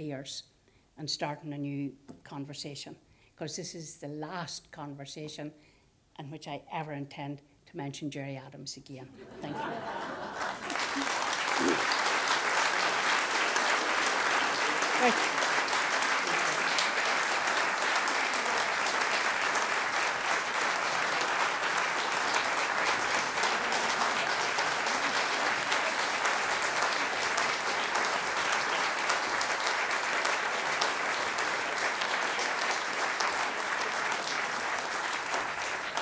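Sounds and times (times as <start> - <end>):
large audience applauding: 9.3 - 36.0.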